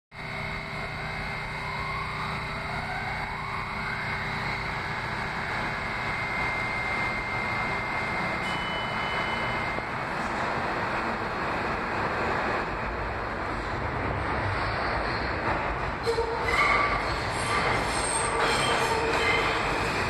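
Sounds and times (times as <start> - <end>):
rising whines: 0.2 - 15.4
train wheels rumbling on rail: 0.2 - 20.0
high wheel squeal: 3.7 - 10.0, 14.4 - 20.0.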